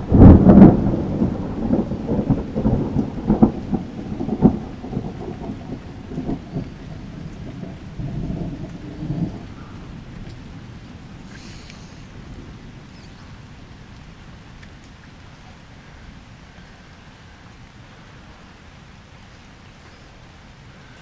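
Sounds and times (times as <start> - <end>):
thunder crack and rumble: 0.0 - 15.4
rain falling: 0.0 - 21.0.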